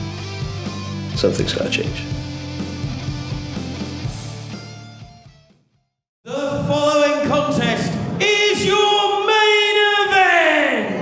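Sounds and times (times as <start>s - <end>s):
rock guitar music: 0.0s - 5.6s
loud singing voices: 6.3s - 11.0s.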